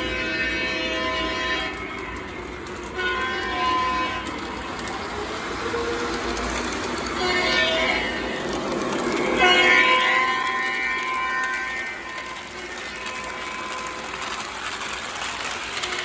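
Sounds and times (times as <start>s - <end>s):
model train horn blasts: 0.0s - 4.4s, 7.0s - 8.5s, 9.1s - 14.3s, 15.7s - 16.0s
model train rumbling on track: 0.0s - 16.0s.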